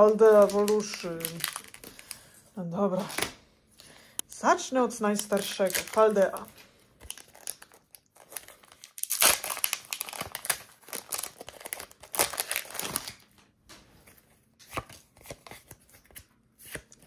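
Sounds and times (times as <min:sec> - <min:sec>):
foil pack crinkling and tearing: 0:00.0 - 0:02.4, 0:05.1 - 0:13.4.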